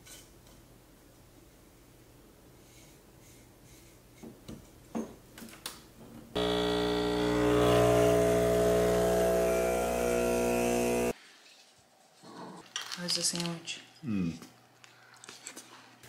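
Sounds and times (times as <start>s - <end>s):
electric motor humming: 6.4s - 11.2s.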